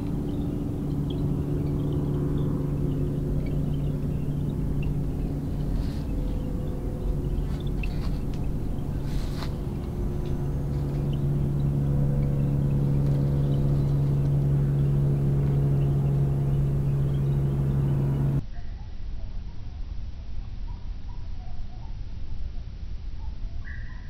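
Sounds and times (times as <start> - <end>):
low buzzing drone: 0.0 - 18.4.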